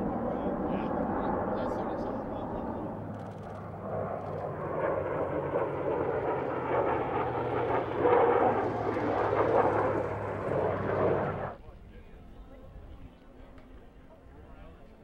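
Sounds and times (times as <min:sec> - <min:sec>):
aircraft roaring past: 0:00.0 - 0:11.6
steady low drone: 0:00.0 - 0:13.5.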